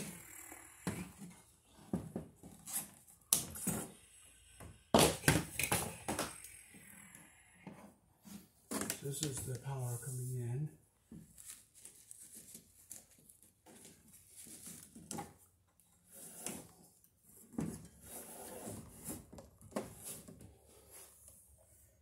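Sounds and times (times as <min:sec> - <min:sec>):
cable rustling and scraping on wood: 0:11.2 - 0:22.0.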